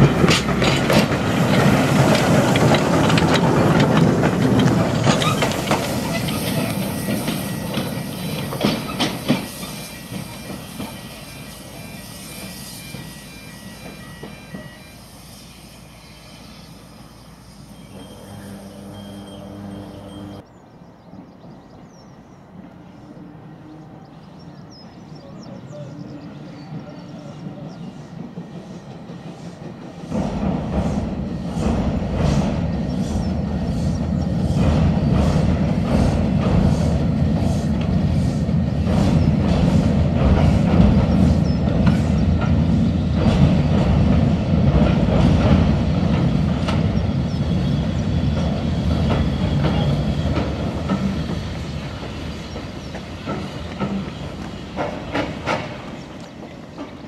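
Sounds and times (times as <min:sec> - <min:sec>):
wheels clicking over rail joints: 0:00.0 - 0:11.1, 0:48.4 - 0:57.0
train rumbling over steel bridge: 0:00.0 - 0:57.0.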